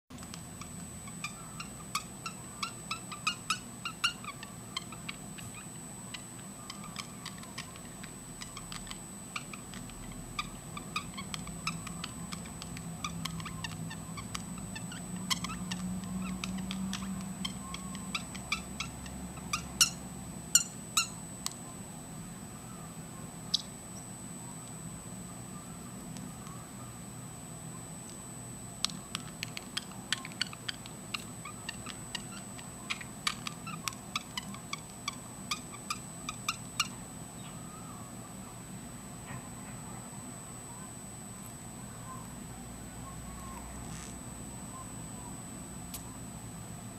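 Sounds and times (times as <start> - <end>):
loud bird calls: 0.1 - 28.0, 28.8 - 45.4
bird chirping: 0.1 - 46.2.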